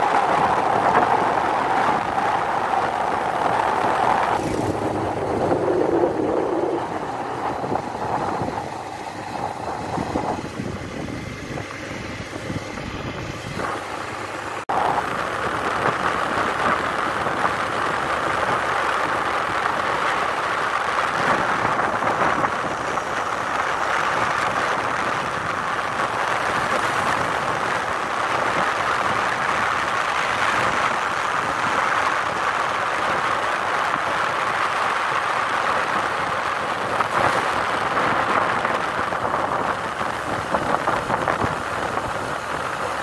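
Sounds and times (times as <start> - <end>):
motorcycle engine and road noise: 0.0 - 43.0.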